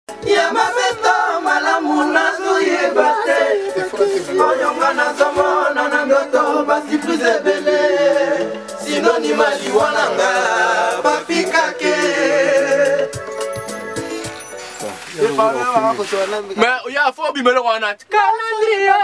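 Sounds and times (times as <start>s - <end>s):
voices singing a cappella: 0.1s - 14.2s, 18.0s - 19.0s.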